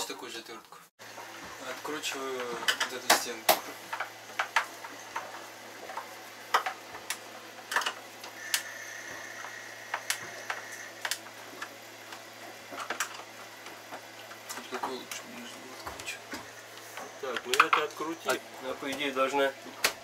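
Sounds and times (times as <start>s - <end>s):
steady low hum: 1.0s - 20.0s
faint high whine: 8.3s - 11.7s, 14.5s - 19.6s.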